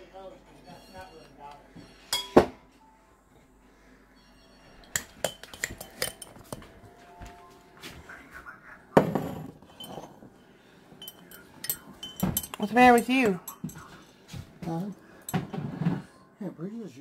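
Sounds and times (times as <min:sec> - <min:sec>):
dishes clinking and knocking: 0:02.1 - 0:02.6, 0:04.8 - 0:07.3, 0:09.0 - 0:16.1.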